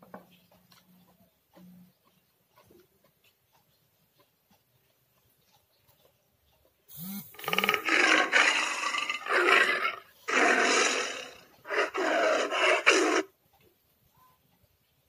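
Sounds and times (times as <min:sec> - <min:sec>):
person roaring: 0:07.4 - 0:13.3.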